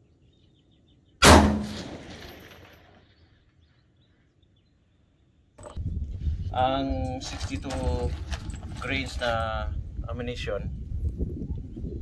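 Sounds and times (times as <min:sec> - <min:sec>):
rifle shot echoing: 0:01.2 - 0:03.0.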